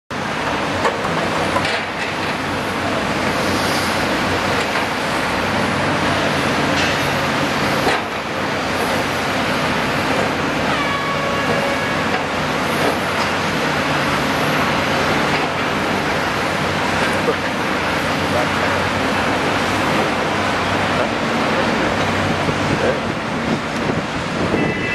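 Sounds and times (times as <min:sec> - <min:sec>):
city traffic rumble: 0:00.1 - 0:24.9
excavator diesel engine running: 0:00.2 - 0:24.9
brief high tone: 0:24.5 - 0:24.9.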